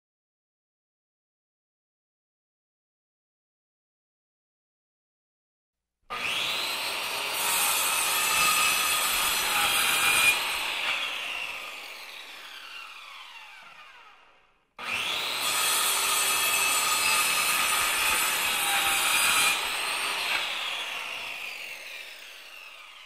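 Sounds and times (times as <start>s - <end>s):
power tool cutting: 6.1s - 23.0s.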